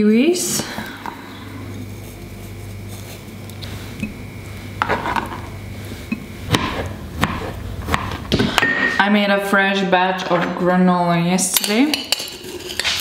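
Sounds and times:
steady low hum: 0:00.0 - 0:11.3
knife peeling and chopping fruit: 0:01.1 - 0:09.0.

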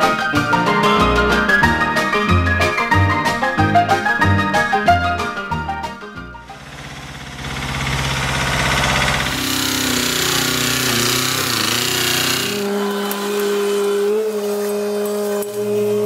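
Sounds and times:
dumper diesel engine running: 0:06.4 - 0:12.8
rapid mechanical hammering: 0:06.5 - 0:13.8.

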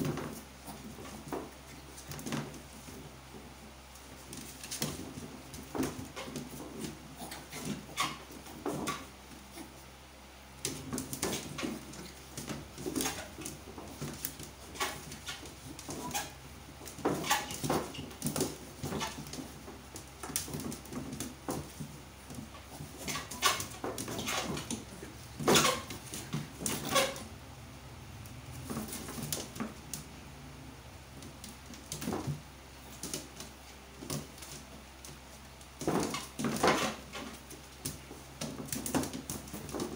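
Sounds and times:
paws scuffling on hard floor: 0:00.0 - 0:09.9, 0:10.6 - 0:27.2.

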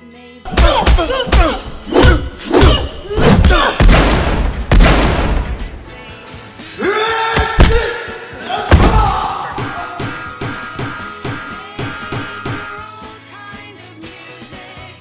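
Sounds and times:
music: 0:00.0 - 0:15.0
punches landing: 0:00.5 - 0:06.0, 0:07.4 - 0:08.0, 0:08.6 - 0:12.8.

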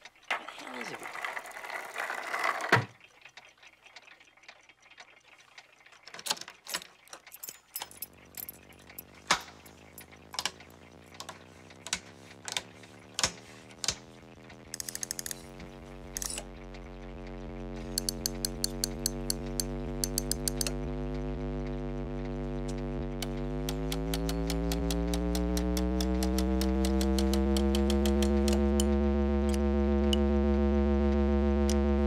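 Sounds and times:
dial ticking as turned: 0:08.0 - 0:30.2
amplifier electrical hum: 0:08.1 - 0:32.0
toggle switches clicking: 0:09.3 - 0:14.1, 0:14.7 - 0:15.5, 0:17.9 - 0:20.8, 0:22.6 - 0:28.9.

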